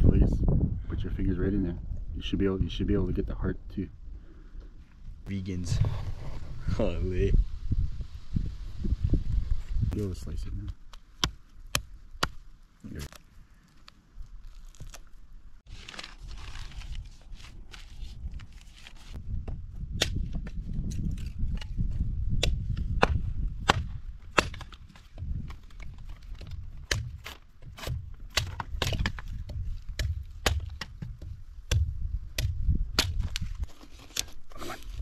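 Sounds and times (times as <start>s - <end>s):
axe chopping wood: 11.2s - 12.4s, 19.4s - 21.7s, 22.4s - 33.4s.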